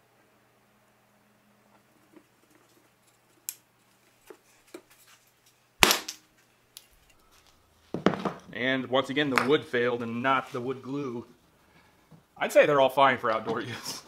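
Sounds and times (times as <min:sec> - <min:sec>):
wooden mallet cracking wood block: 0:05.8 - 0:06.2.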